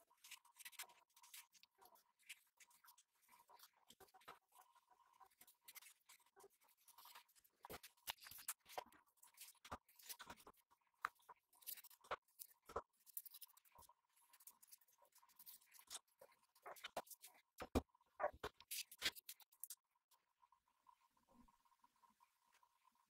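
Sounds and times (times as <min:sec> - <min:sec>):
handling clicks taps and scrapes: 0:00.1 - 0:19.8.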